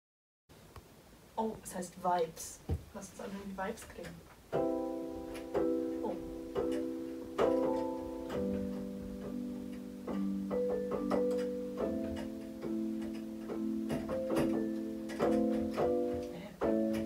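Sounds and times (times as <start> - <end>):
electronic keyboard chords: 4.5 - 17.0.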